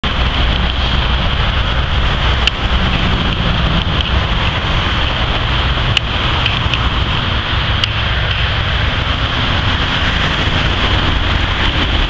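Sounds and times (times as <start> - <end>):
traffic rumble with tyre hiss: 0.0 - 12.0
wind on microphone: 0.0 - 12.0.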